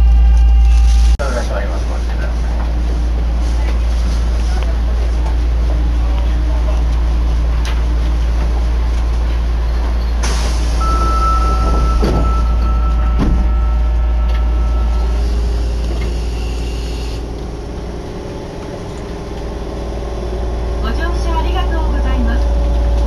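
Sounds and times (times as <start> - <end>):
subway train low rumble: 0.0 - 23.0
train hum pulling out: 0.0 - 23.0
electronic warning tone: 10.8 - 17.2.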